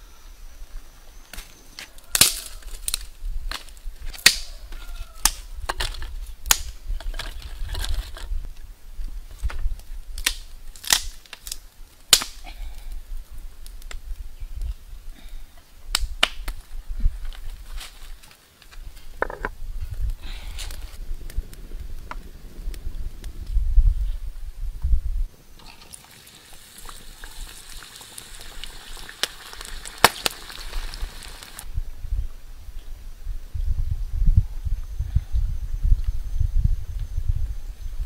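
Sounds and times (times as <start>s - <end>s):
stones and sticks cracking: 1.3s - 8.4s, 9.4s - 13.0s, 15.9s - 21.0s, 26.5s - 31.7s.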